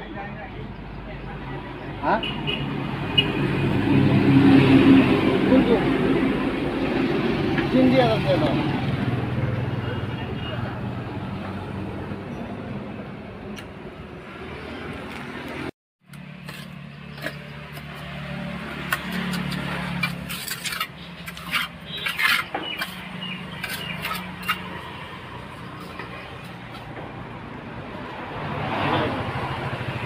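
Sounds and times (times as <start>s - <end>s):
trowel scraping and tapping: 16.1s - 25.0s.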